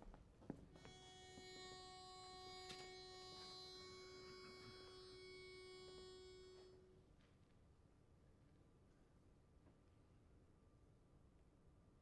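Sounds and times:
pitch pipe note: 1.3s - 6.9s.

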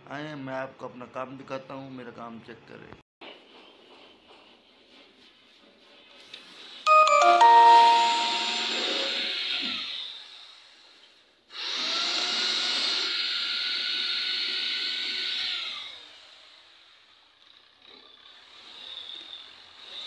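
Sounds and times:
small electric motor whirring: 11.6s - 20.0s.

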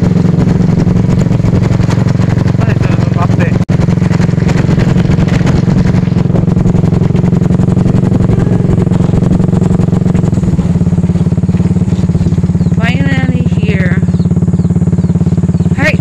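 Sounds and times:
motorcycle engine running: 0.0s - 16.0s.

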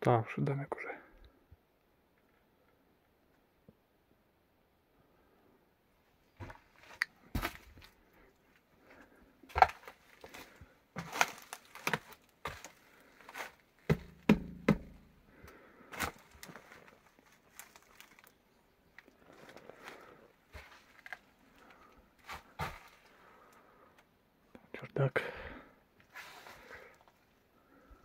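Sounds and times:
footsteps crunching over boards: 6.4s - 18.3s, 19.2s - 23.2s
wood creaking: 9.5s - 15.2s.

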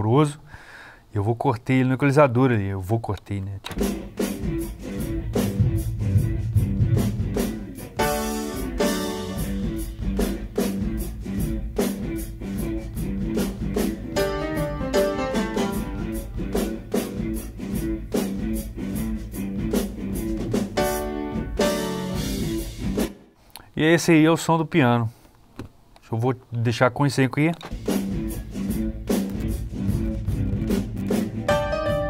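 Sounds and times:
drum kit with cymbal strokes: 3.8s - 23.3s, 27.7s - 32.0s
piano chords: 8.0s - 9.6s, 14.1s - 16.7s, 20.7s - 22.5s, 31.4s - 32.0s.

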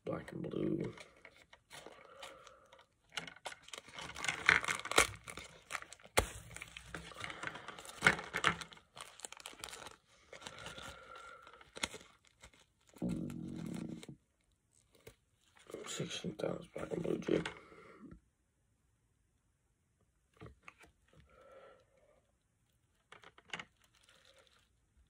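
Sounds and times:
packaging torn and crinkled: 0.8s - 14.1s, 22.9s - 24.8s.

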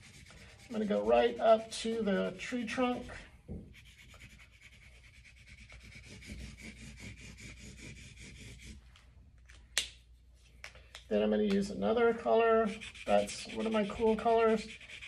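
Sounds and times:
crayon scribbling on paper: 0.0s - 8.8s, 12.3s - 15.0s.

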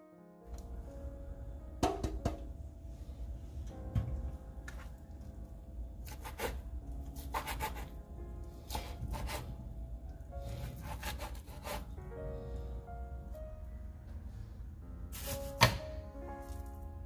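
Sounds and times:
background music: 0.0s - 17.0s
knife sawing through ham: 6.0s - 6.6s, 7.2s - 7.9s, 8.7s - 9.5s, 10.5s - 11.9s.

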